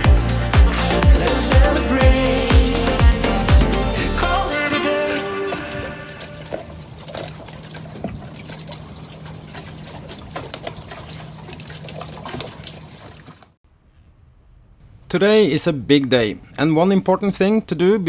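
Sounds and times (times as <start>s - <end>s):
song playing: 0.0s - 6.5s
water lapping against boat: 5.3s - 13.6s.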